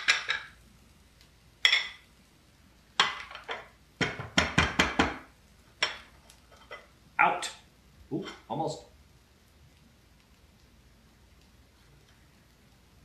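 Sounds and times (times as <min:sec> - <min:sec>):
ceramic cup knocking on plate: 0:04.0 - 0:05.2.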